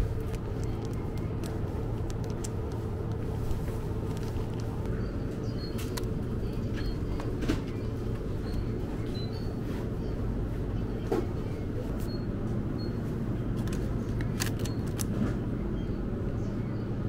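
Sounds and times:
plastic packaging crinkling: 0.0s - 4.9s
low machine hum: 0.0s - 17.0s.

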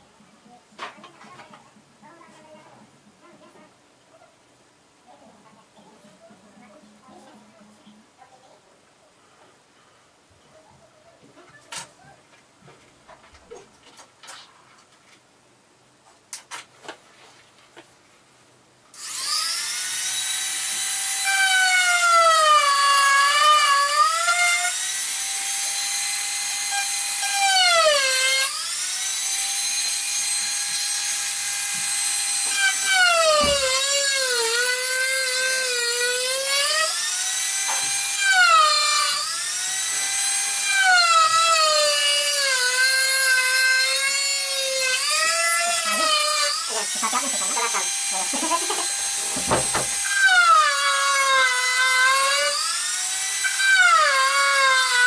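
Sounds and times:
rotary tool whining: 19.0s - 55.0s.

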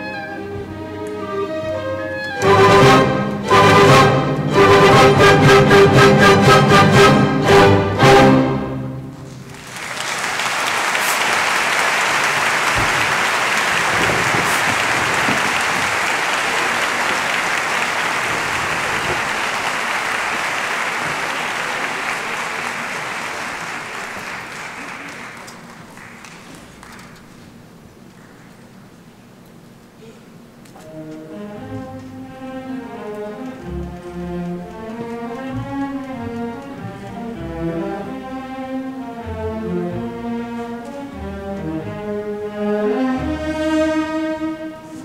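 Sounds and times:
orchestra loud chords: 0.0s - 24.6s, 30.8s - 45.0s
audience applause: 9.4s - 27.5s.

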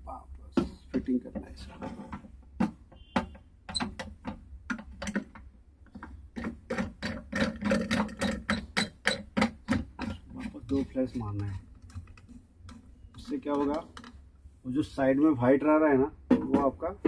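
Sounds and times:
machine clicks and knocks: 2.1s - 14.2s.

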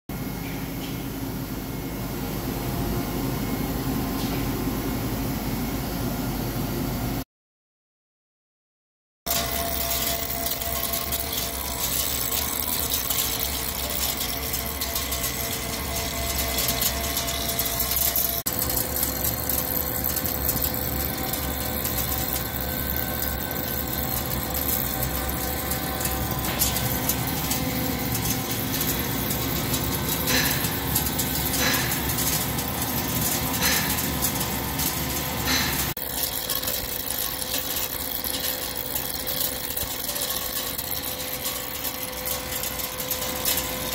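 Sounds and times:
lathe cutting steel: 9.3s - 43.9s
lathe spindle running: 9.3s - 43.9s.

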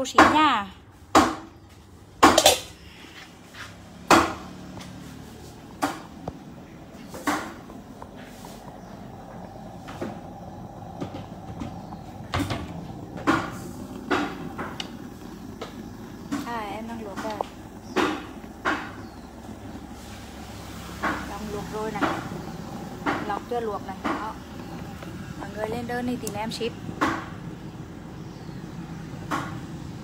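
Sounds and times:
low background hum: 0.0s - 30.0s
kitchen items knocking and clattering: 2.2s - 2.8s.

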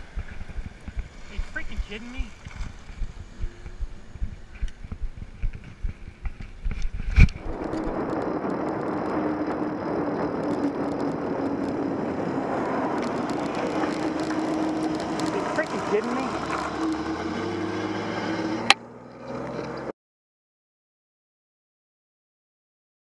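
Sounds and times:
faint low hum: 0.0s - 9.1s
wind buffeting microphone: 0.0s - 19.0s
wind and road noise: 0.0s - 19.9s.

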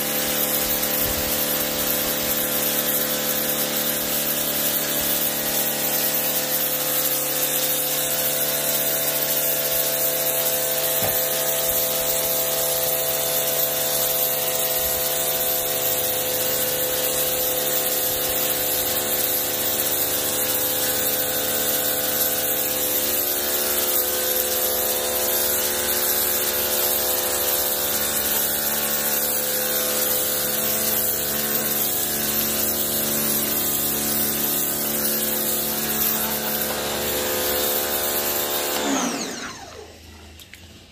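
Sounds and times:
pressure washer pump humming: 0.0s - 40.9s
water jet hissing on concrete: 0.0s - 40.9s.

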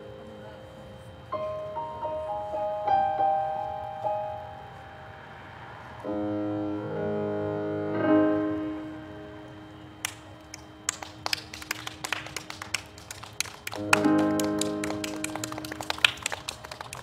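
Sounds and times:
instrumental chord ringing: 0.0s - 12.4s, 13.7s - 16.2s
people clapping: 10.0s - 17.0s.

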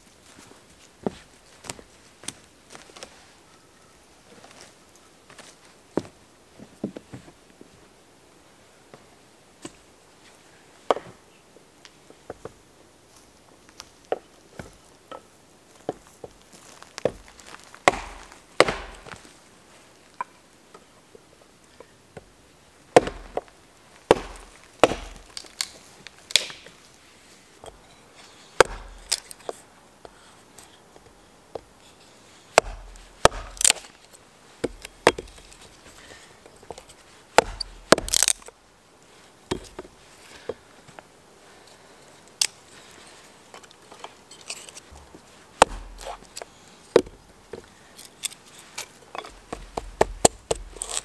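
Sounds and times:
hatchet chopping wood: 17.0s - 19.2s, 23.0s - 23.5s, 24.1s - 25.7s, 26.3s - 26.7s, 28.6s - 29.4s, 32.5s - 33.9s, 34.6s - 35.6s, 36.7s - 38.5s, 39.5s - 39.9s, 45.6s - 47.2s, 49.2s - 51.0s
dull thud from log: 17.9s - 19.2s, 23.0s - 23.4s, 24.1s - 25.3s, 28.6s - 29.0s, 32.6s - 33.8s, 37.4s - 38.4s, 45.6s - 46.1s.

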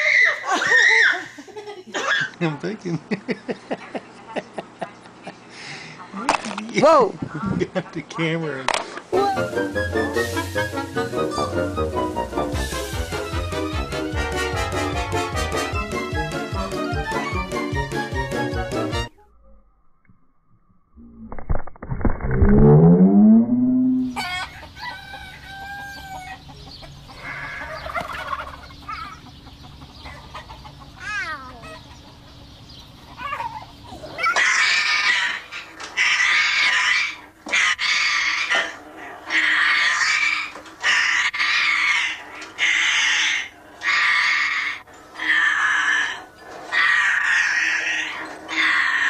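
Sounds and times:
parrot whistling gliding notes: 9.2s - 13.2s, 22.6s - 24.2s
parrot squawking loudly: 34.2s - 49.0s.

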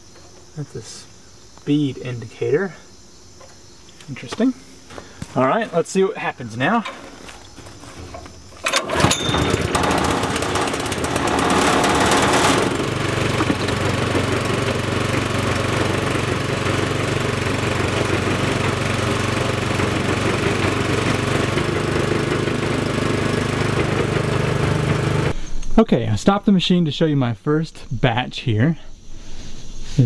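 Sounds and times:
small gas engine starting and running: 6.8s - 25.4s.

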